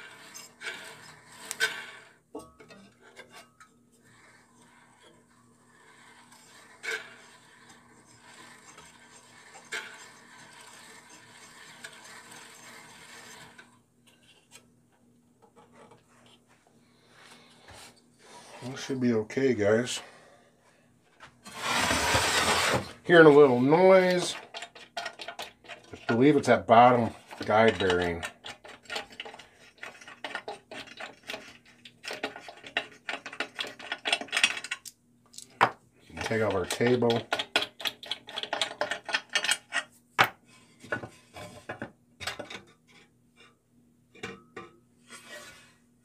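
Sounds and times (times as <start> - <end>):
bandsaw blade rasping rub: 4.1 - 13.6.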